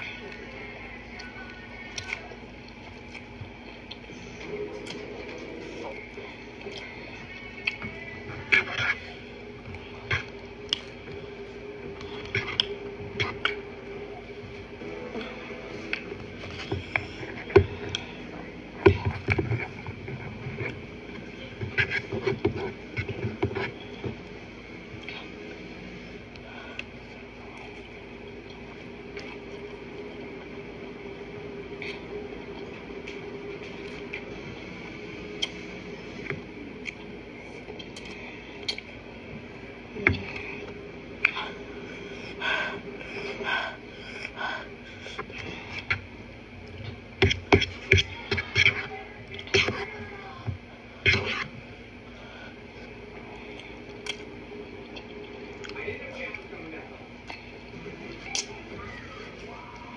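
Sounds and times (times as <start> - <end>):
steady background hum: 0.0 - 59.9
fork scraping plastic bowl: 51.0 - 51.6.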